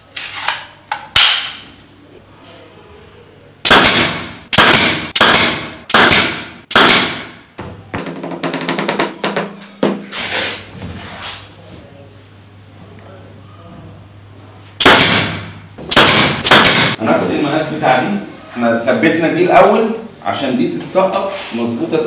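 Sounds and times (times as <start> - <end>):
nail gun shots: 3.6 - 7.4, 14.8 - 17.0.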